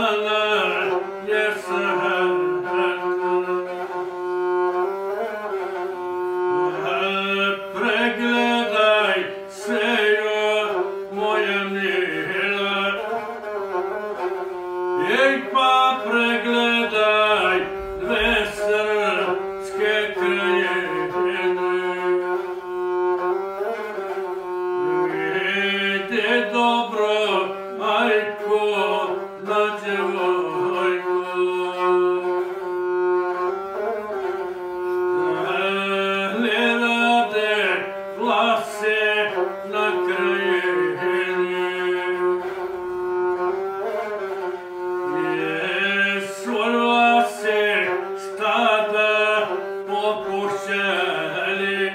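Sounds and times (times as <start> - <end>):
man singing: 0.0 - 4.0, 6.6 - 13.6, 14.9 - 22.6, 24.9 - 32.8, 35.2 - 42.8, 45.1 - 51.9
bowed single-string fiddle: 0.0 - 51.9.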